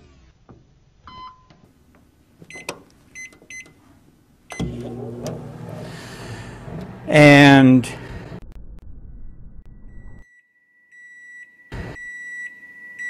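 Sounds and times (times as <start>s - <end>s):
microwave keypad beeps: 1.1s - 1.5s, 2.5s - 3.8s
microwave start click: 4.5s - 7.3s
microwave running hum: 4.5s - 8.4s.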